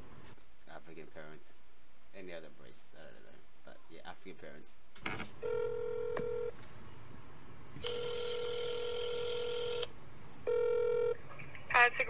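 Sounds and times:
telephone ringing tone: 5.4 - 6.5, 7.8 - 9.9, 10.5 - 11.2.

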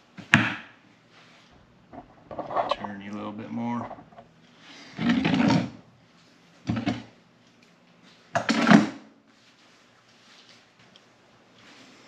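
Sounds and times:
welder scraping on work surface: 1.9 - 3.0.

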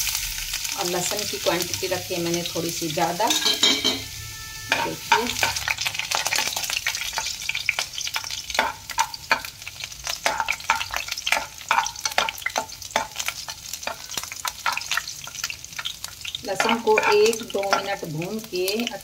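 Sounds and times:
garlic sizzling in hot oil: 0.0 - 19.0
spatula scraping pan: 3.2 - 7.3, 16.5 - 18.0.

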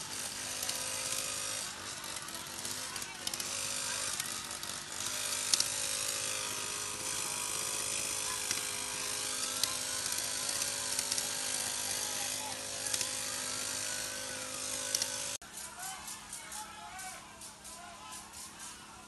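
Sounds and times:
small engine running: 0.0 - 19.0.

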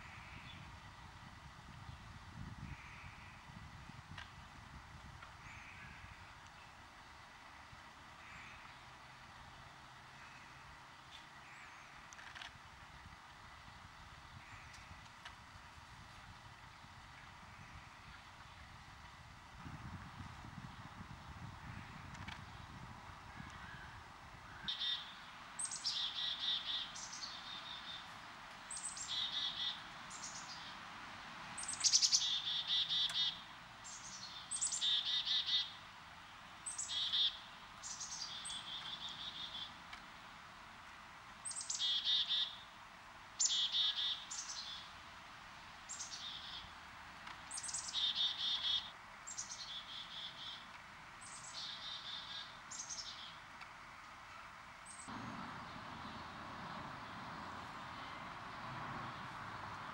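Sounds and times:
songbird singing trills: 23.4 - 30.8, 31.6 - 35.8, 36.6 - 39.8, 41.4 - 42.7, 43.4 - 45.0, 45.9 - 53.5, 54.8 - 58.3.

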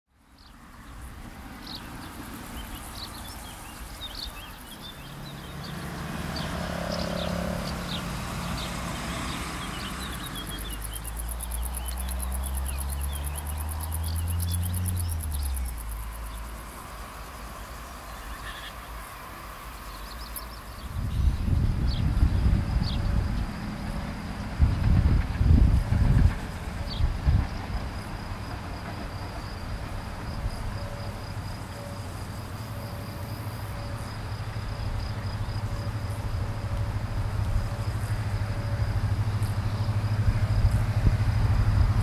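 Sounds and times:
insects chirping and buzzing: 0.2 - 42.0
low engine drone: 31.6 - 42.0.

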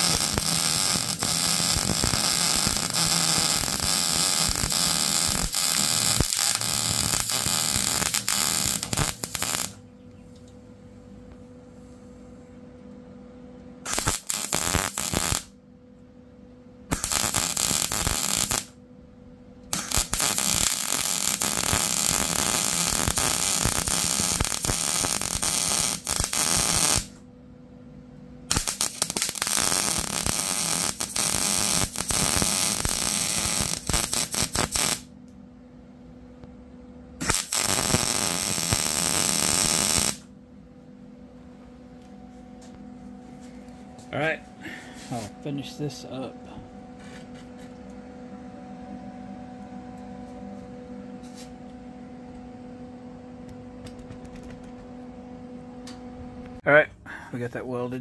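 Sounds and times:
welder arc crackling: 0.0 - 9.8, 13.8 - 15.6, 16.9 - 18.8, 19.6 - 27.2, 28.4 - 35.1, 37.2 - 40.3, 52.8 - 55.2, 55.8 - 56.6
steady low hum: 0.0 - 58.0.

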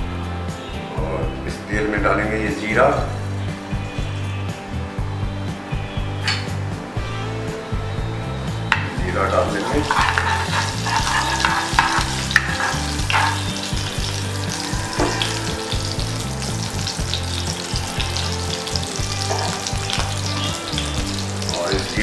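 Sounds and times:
background music with bass line: 0.0 - 22.0
seeds sizzling in hot oil: 9.1 - 22.0
spatula scraping and stirring: 9.4 - 21.5.

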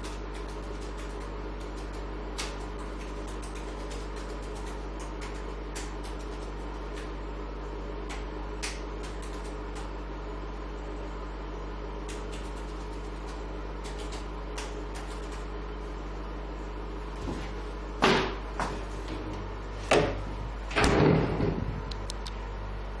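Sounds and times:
steady electrical hum: 0.0 - 23.0
loud knocks: 19.9 - 21.8.

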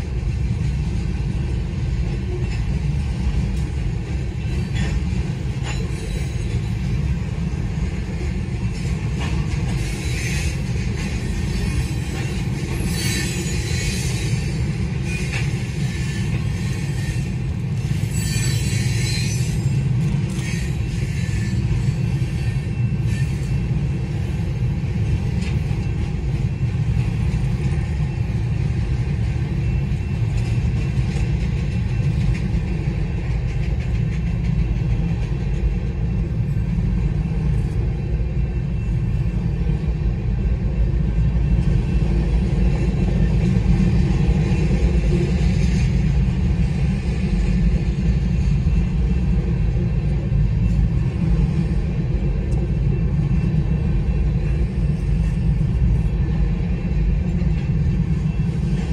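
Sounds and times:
train wheels rumbling on rail: 0.0 - 58.9.

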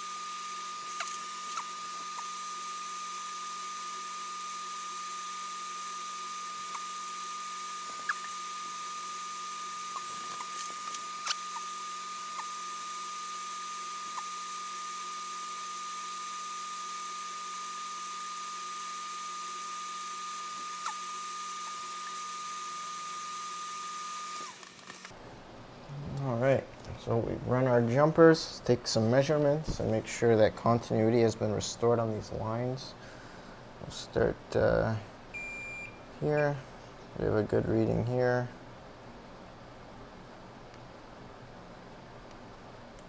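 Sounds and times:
constant hiss of bench equipment: 0.0 - 2.9, 24.0 - 43.0
high-pitched whine: 0.0 - 24.6.

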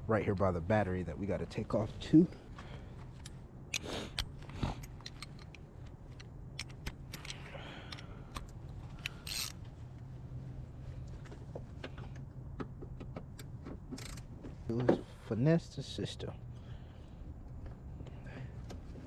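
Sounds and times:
socket ratchet clicking: 6.2 - 9.6.

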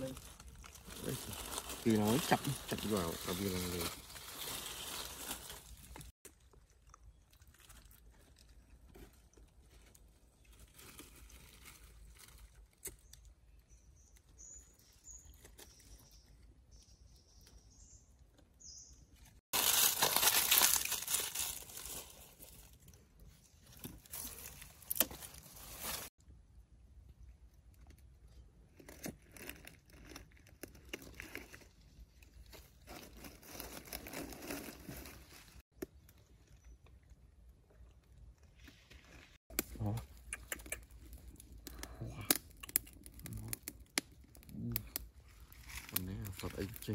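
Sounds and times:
hands rustling dry leaves: 0.0 - 6.1, 19.5 - 26.1, 45.1 - 46.9.

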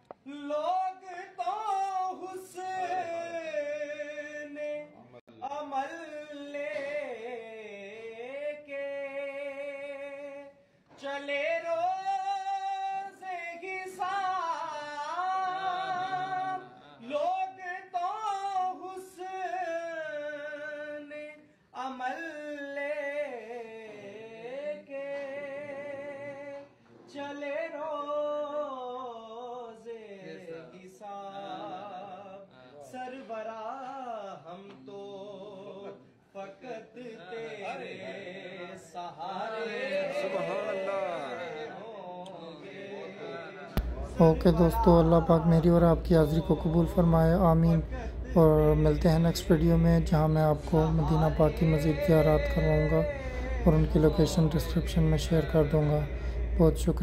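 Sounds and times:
singer breathing: 47.9 - 48.3, 53.2 - 53.7, 56.1 - 56.6.

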